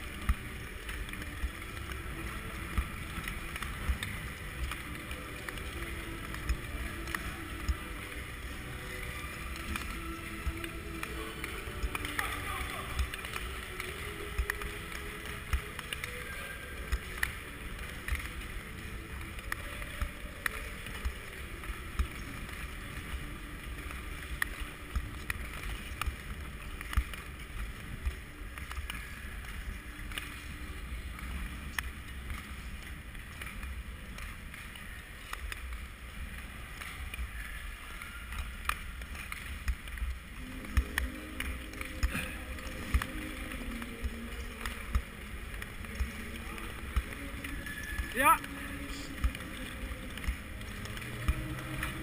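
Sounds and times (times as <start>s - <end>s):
skate blades scraping on ice: 0.0s - 52.0s.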